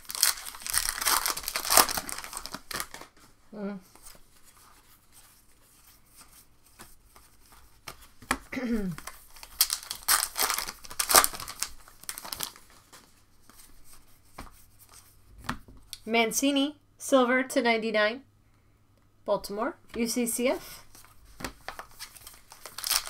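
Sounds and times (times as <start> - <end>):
wrapper tearing and crinkling: 0.0 - 3.1, 9.0 - 12.8, 21.7 - 23.0.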